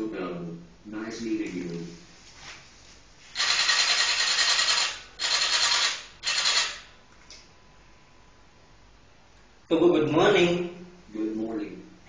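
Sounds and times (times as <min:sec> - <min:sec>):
small geared motors whirring: 0:03.4 - 0:06.8.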